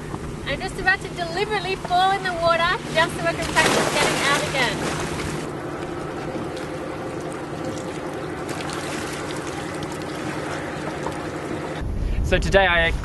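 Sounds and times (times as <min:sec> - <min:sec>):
low hum: 0:00.0 - 0:13.0
water splashing and dripping: 0:03.3 - 0:05.5, 0:06.2 - 0:11.8.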